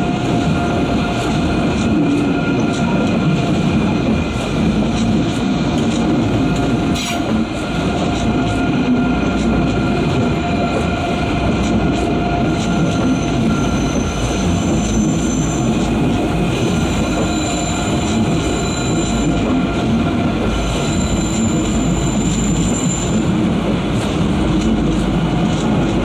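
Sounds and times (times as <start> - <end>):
rumble of train wheels on rail: 0.0 - 26.0
high-pitched wheel squeal: 12.5 - 15.8, 16.7 - 19.6, 20.6 - 23.3.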